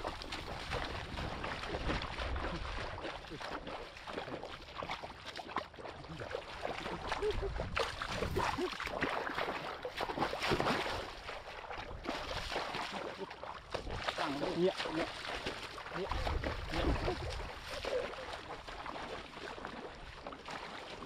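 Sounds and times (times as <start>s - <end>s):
fish thrashing in water: 0.0s - 19.7s
feet splashing through shallow water: 0.0s - 21.0s.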